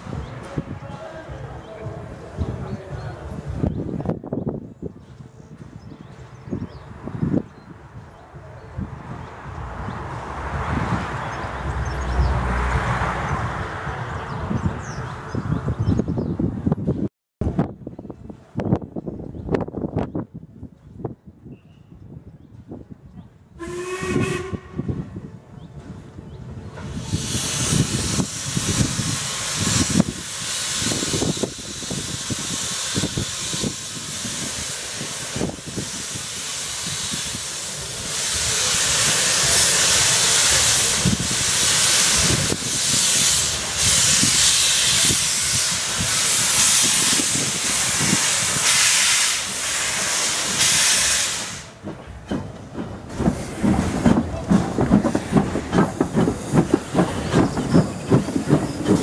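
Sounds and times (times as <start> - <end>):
steam hissing: 26.8 - 59.0
steam engine rhythmic beat: 40.9 - 59.0.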